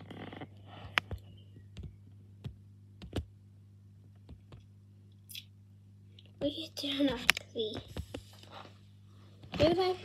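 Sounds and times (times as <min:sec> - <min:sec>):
steady low hum: 0:00.0 - 0:10.0
quiet clicks and taps: 0:04.0 - 0:05.2.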